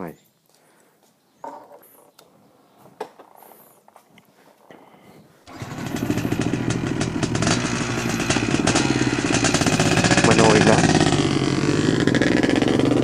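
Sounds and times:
motorcycle engine running: 5.5 - 13.0.

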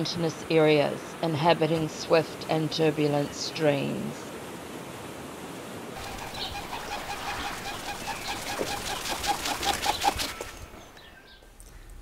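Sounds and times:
pigeon wingbeats: 6.0 - 10.8.

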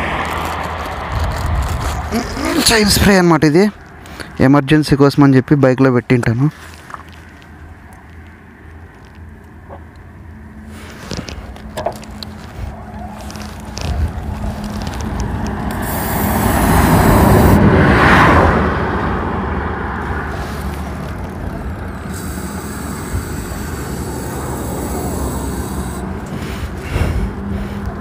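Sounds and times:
low traffic hum: 0.0 - 28.0
vehicle passing close by: 14.4 - 28.0
aerosol spray hissing: 15.8 - 17.6, 22.2 - 26.0.

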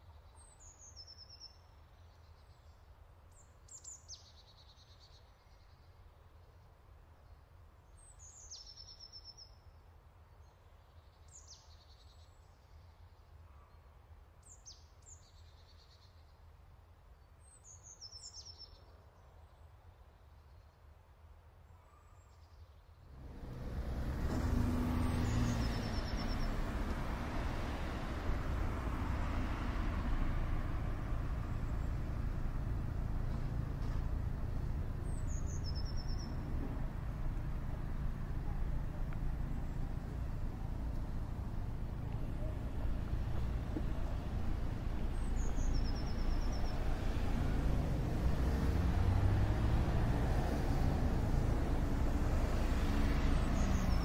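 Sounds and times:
road traffic rumble: 23.1 - 54.0.

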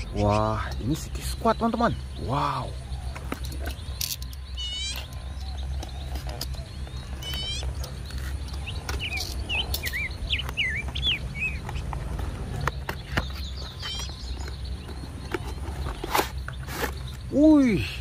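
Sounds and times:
small bird chirping: 0.0 - 18.0.

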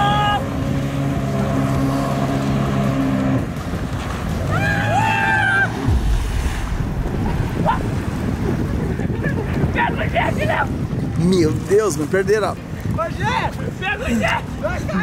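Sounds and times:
jet ski engine running: 0.0 - 13.8
choppy water: 0.0 - 15.0
wind noise on microphone: 0.0 - 15.0
heavy low splash: 5.6 - 9.8
high rising tone: 5.7 - 8.7.

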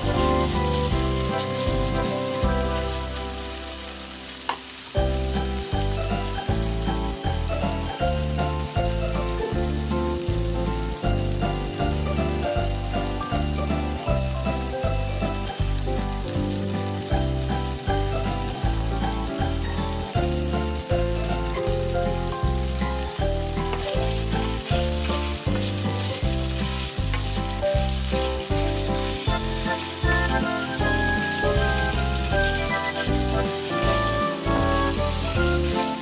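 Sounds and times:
background music with steady beat: 0.0 - 3.9
meat sizzling in a pan: 0.0 - 36.0
spatula stirring: 15.8 - 36.0.

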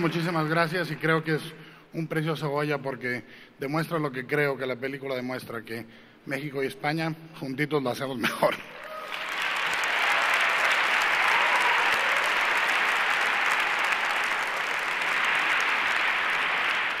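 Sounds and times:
audience applauding: 0.0 - 1.2, 8.7 - 17.0.

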